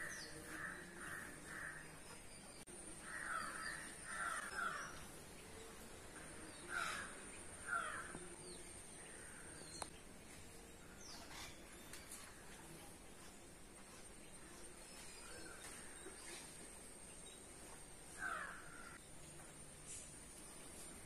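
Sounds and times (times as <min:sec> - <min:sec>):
crows cawing: 0:03.0 - 0:04.9, 0:06.7 - 0:08.2, 0:18.2 - 0:19.0.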